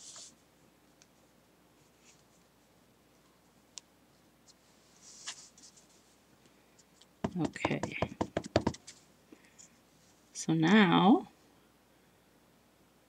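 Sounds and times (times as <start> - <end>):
paper rustling and finger taps: 7.2 - 9.0.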